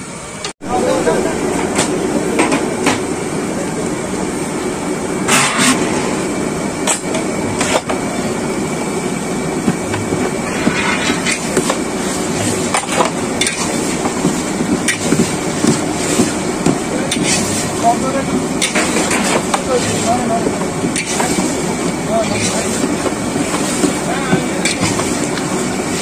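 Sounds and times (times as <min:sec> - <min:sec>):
gas burner roar: 0:00.0 - 0:26.0
metal spatula scraping iron pan: 0:05.3 - 0:05.8, 0:10.4 - 0:11.6.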